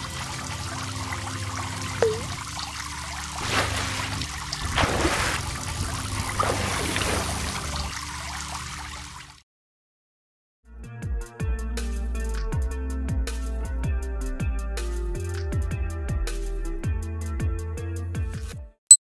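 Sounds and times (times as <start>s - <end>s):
water trickling: 0.0s - 9.3s.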